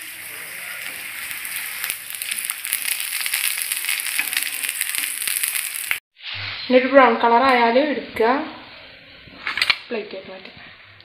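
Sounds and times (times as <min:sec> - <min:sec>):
oil sizzling and crackling: 0:00.0 - 0:06.9.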